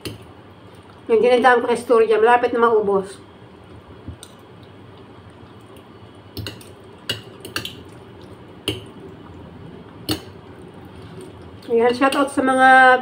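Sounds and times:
low steady background noise: 0.0 - 13.0
wet eating clicks and smacks: 4.2 - 11.7.

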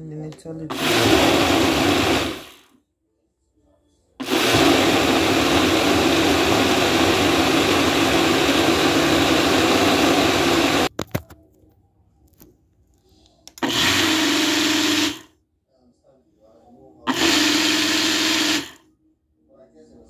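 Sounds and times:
blender motor running: 0.7 - 2.7, 4.2 - 10.9, 13.6 - 15.3, 17.1 - 18.8.

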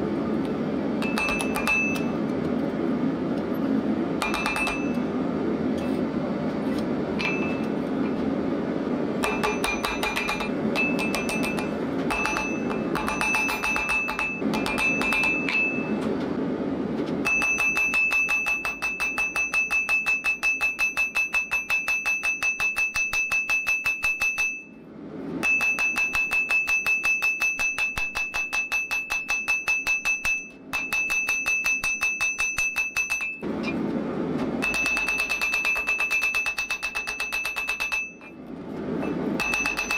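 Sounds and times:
hammer striking steel on anvil: 1.0 - 2.2, 4.2 - 5.1, 7.2 - 7.7, 9.2 - 16.0, 17.2 - 24.8, 25.4 - 33.8, 34.6 - 38.4, 39.0 - 39.9.

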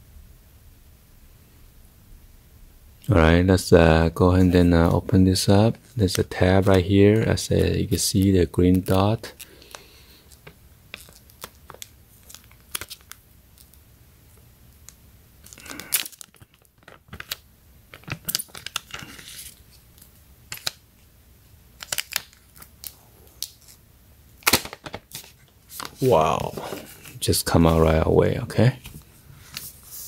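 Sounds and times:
plastic wrap crinkling and tearing: 6.0 - 13.8, 15.4 - 20.8, 21.8 - 23.8.

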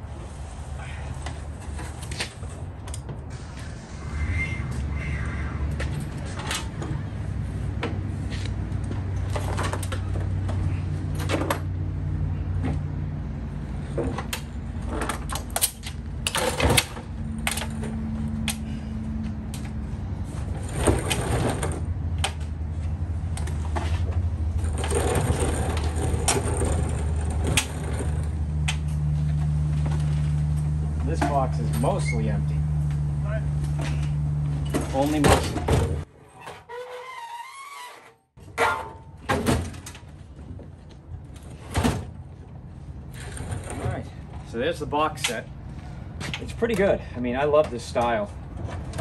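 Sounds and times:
metal tool cabinet clanking: 14.0 - 18.0, 20.6 - 22.4, 23.7 - 28.7, 33.8 - 36.9, 38.4 - 40.2, 41.4 - 42.2.

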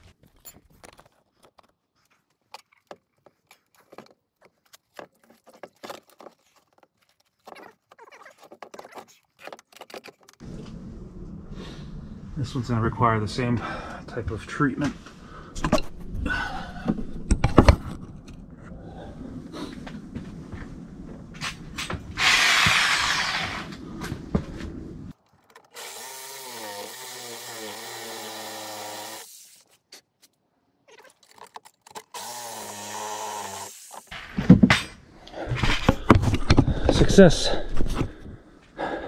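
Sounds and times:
knocks and handling noise: 0.0 - 10.8, 16.8 - 18.7, 33.9 - 38.4
power tool motor running: 22.2 - 23.7, 25.8 - 29.4, 32.1 - 34.1.

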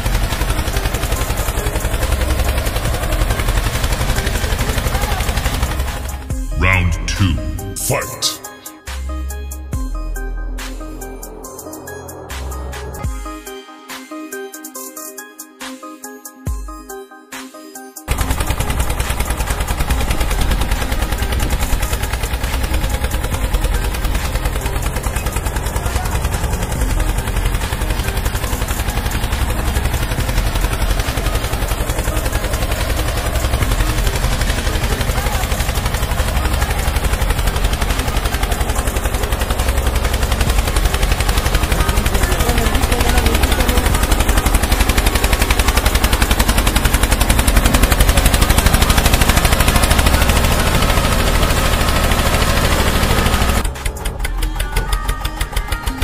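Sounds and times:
toy motor rattling and humming: 0.0 - 6.3, 18.1 - 56.0.

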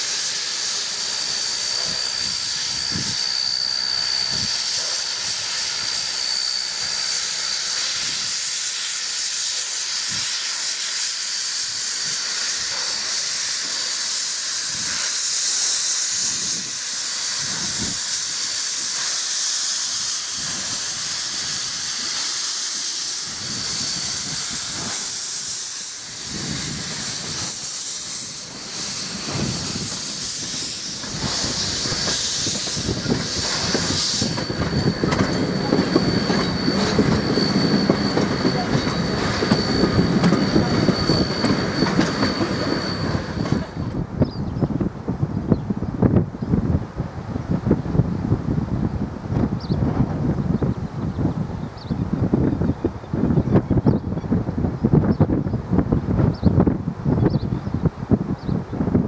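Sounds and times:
steam hissing: 0.0 - 44.3
thin high whistle: 0.1 - 44.7.

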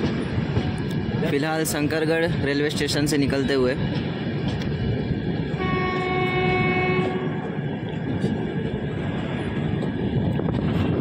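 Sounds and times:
train rumbling on rails: 0.0 - 11.0
train horn: 5.6 - 7.5.

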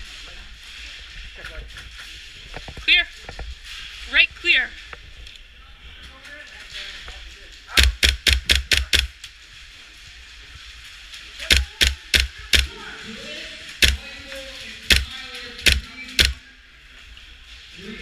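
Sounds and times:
airsoft rifle shots: 7.8 - 9.1, 11.4 - 12.8, 13.8 - 14.1, 14.9 - 16.4.

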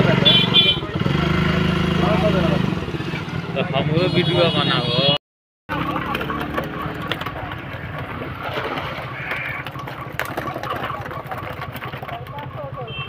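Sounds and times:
water splashing from wading: 7.4 - 10.3.

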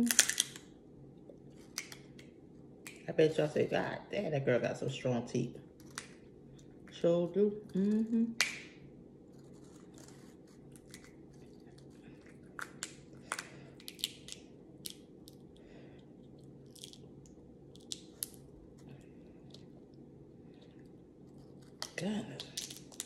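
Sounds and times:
crab shells cracking: 0.0 - 0.8, 1.6 - 3.0, 9.6 - 20.0, 20.6 - 23.0
faint hum: 0.0 - 23.0.

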